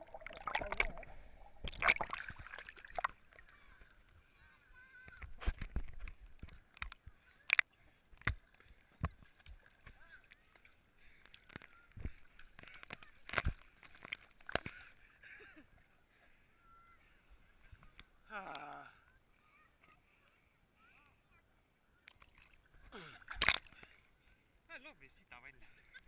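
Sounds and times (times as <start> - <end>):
water slapping camera housing: 23.4 - 23.7.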